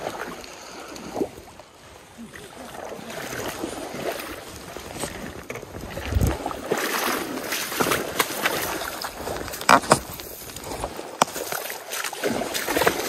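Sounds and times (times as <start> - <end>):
person wading through water: 0.0 - 13.0
microphone knocks and brushing: 5.9 - 6.5.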